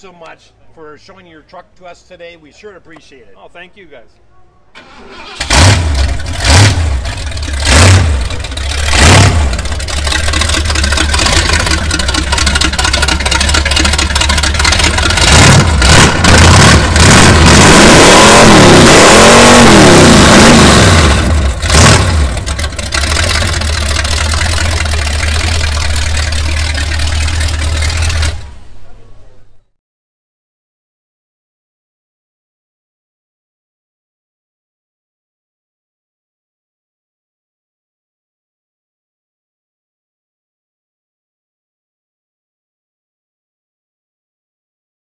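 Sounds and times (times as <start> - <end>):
truck engine revving and idling: 5.1 - 28.8.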